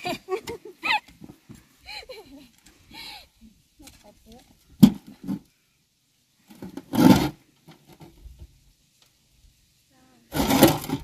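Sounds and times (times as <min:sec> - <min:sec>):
earth thudding into metal wheelbarrow: 0:04.8 - 0:05.4, 0:06.5 - 0:08.2, 0:10.3 - 0:11.0.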